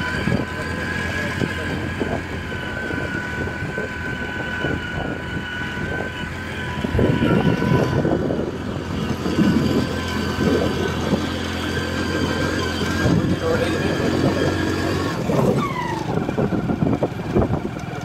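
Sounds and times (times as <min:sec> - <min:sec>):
vehicle engine running: 0:00.0 - 0:18.0
wind buffeting microphone: 0:00.0 - 0:18.0.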